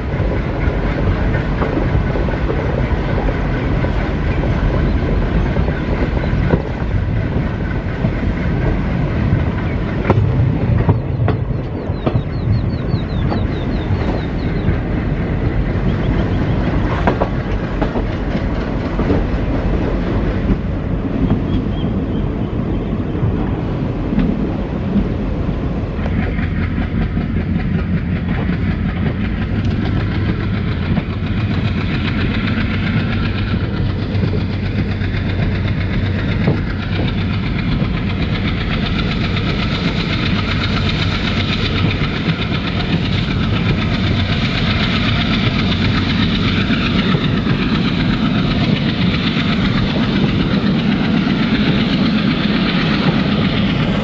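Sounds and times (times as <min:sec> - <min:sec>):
diesel locomotive engine: 0:00.0 - 0:54.0
train wheels clattering on track: 0:00.0 - 0:54.0.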